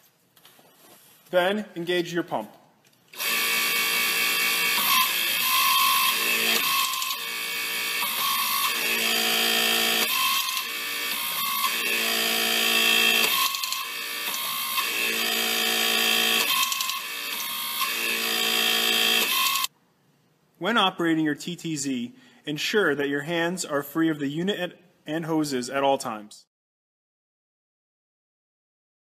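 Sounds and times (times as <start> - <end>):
electric hydraulic pump running: 3.2 - 19.7.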